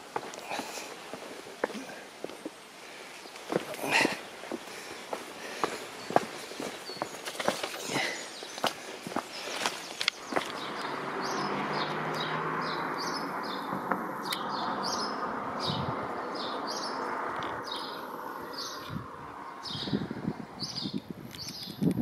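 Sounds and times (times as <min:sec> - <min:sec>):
footsteps: 0:00.0 - 0:10.8
small bird chirping: 0:20.6 - 0:21.8.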